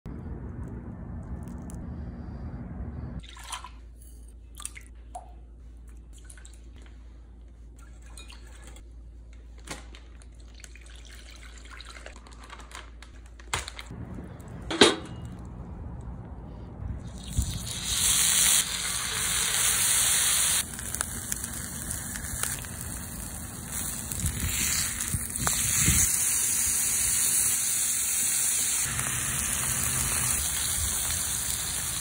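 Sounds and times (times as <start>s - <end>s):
liquid pouring and dripping: 10.2s - 12.2s.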